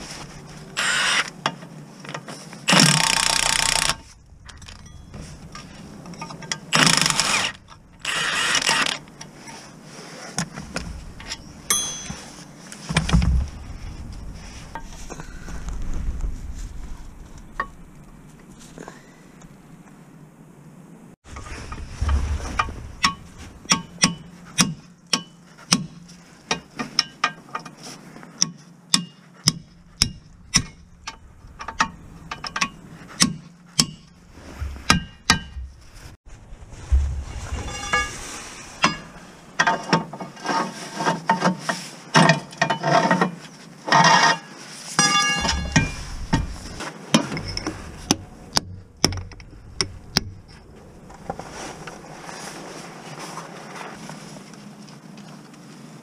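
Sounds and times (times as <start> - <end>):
hammer clanking on steel: 22.1 - 27.4, 45.0 - 50.4.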